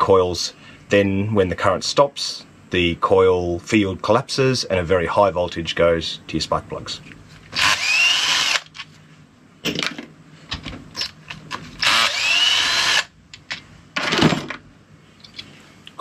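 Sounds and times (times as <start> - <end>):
cordless drill motor whine: 7.6 - 8.7, 11.8 - 13.1.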